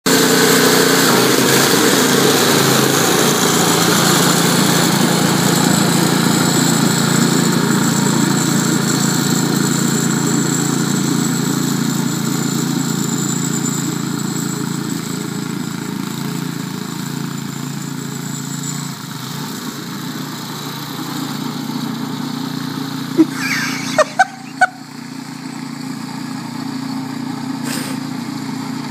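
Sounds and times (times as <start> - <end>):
snowblower engine running: 0.1 - 28.9.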